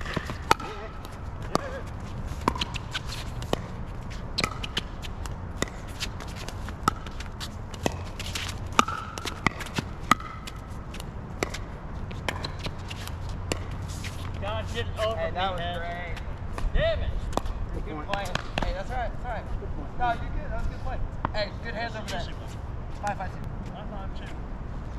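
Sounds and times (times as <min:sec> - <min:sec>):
ball bounces: 0:00.0 - 0:14.4, 0:18.1 - 0:18.8.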